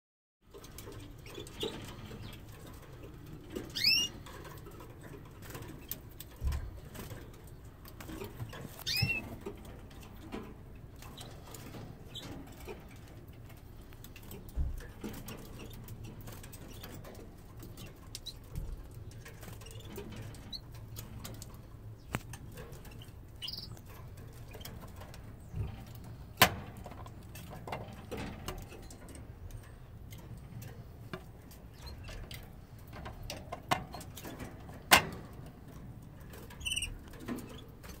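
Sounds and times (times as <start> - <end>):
canary chirps: 0.8 - 4.8, 7.0 - 9.4, 15.4 - 25.7, 36.3 - 37.7.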